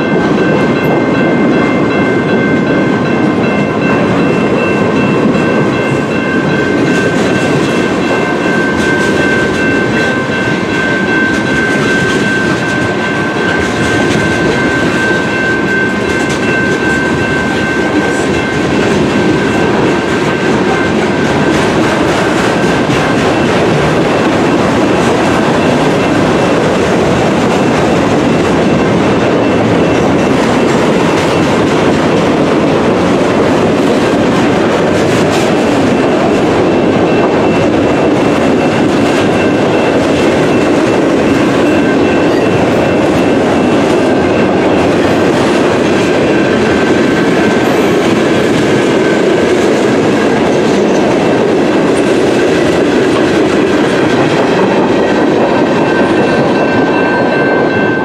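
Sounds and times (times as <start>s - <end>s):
train wheels rumbling and clacking: 0.0s - 58.0s.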